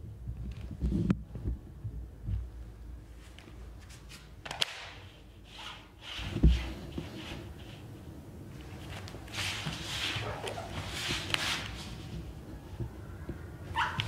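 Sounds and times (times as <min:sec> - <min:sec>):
faint rustling: 0:05.1 - 0:14.0.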